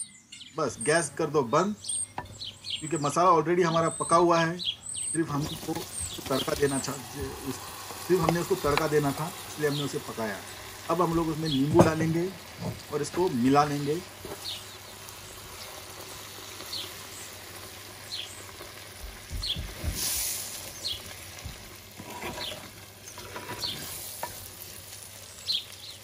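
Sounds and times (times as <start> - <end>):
oil sizzling in a pot: 5.3 - 26.0.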